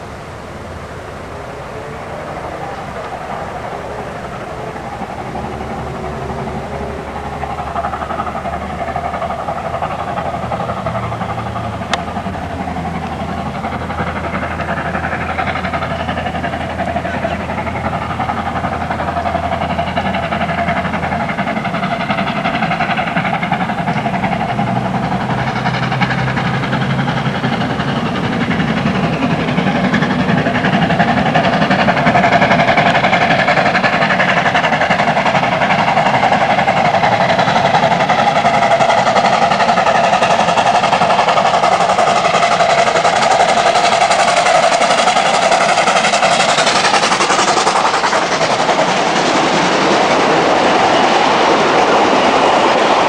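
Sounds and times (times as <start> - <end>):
steam locomotive working hard: 0.0 - 53.0
train carriages rolling past: 0.0 - 53.0.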